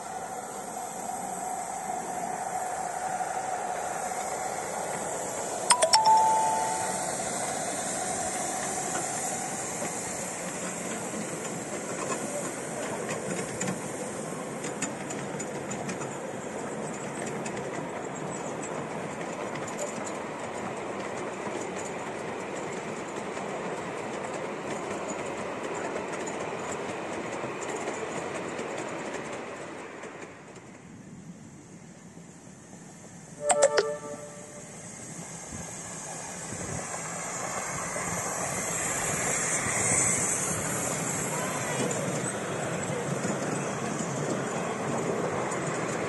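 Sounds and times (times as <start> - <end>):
steam hissing: 0.0 - 5.6, 6.9 - 15.6, 34.6 - 46.0
train wheels clicking on rail joints: 7.8 - 31.2, 35.7 - 46.0
steam locomotive whistle: 33.4 - 34.9.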